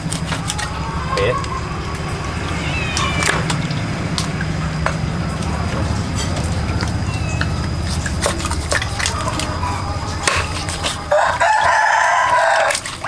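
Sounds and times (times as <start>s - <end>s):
loud animal call: 0.0s - 4.4s
low steady hum: 0.0s - 13.0s.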